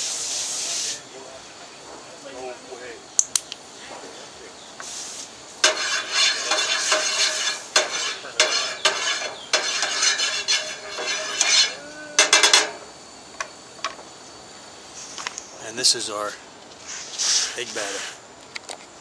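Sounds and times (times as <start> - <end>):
sharp clicks: 3.2 - 3.6
spork scraping a frying pan: 5.6 - 12.8.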